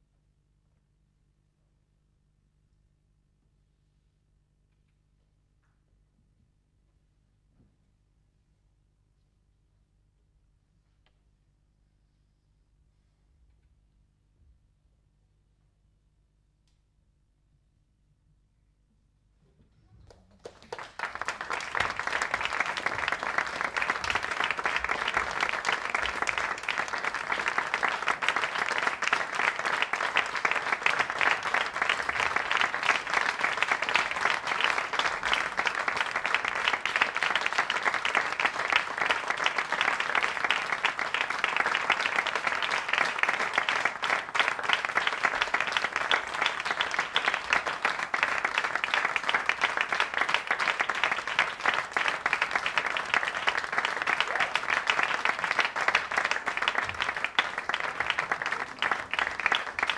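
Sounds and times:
audience applauding: 0:20.0 - 0:59.9.

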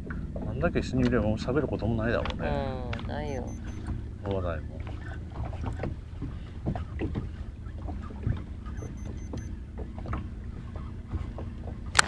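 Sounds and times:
water lapping at boat: 0:00.0 - 0:12.0
faint high beeps: 0:03.2 - 0:03.9, 0:08.8 - 0:09.5.

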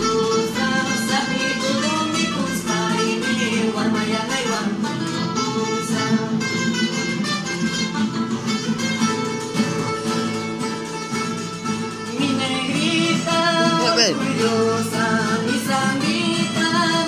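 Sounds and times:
person singing: 0:00.0 - 0:06.5, 0:12.2 - 0:17.0
acoustic guitars strumming: 0:00.0 - 0:17.0.

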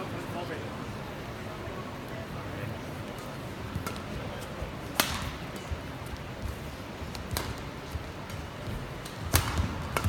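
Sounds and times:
low crowd murmur: 0:00.0 - 0:10.0
rackets striking shuttlecock: 0:04.8 - 0:05.8, 0:07.1 - 0:10.0.

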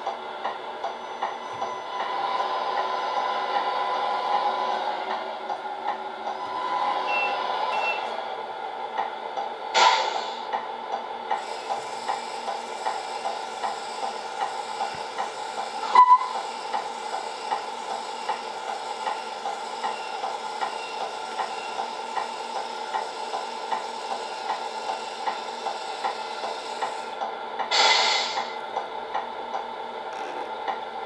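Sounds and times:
simulated truck engine: 0:00.0 - 0:31.0
brief beep: 0:07.1 - 0:08.1, 0:15.9 - 0:16.4.

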